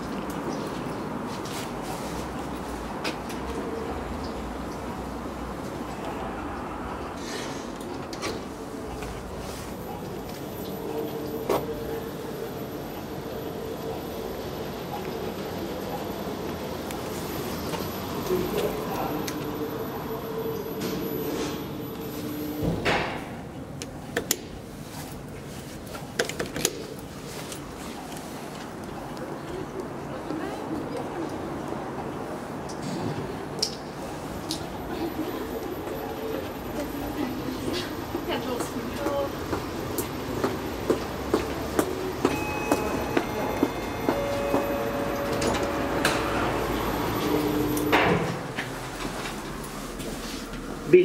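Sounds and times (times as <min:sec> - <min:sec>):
elevator doors sliding: 0:32.2 - 0:50.8
elevator hum: 0:35.0 - 0:50.8
steady station rumble: 0:36.6 - 0:49.6.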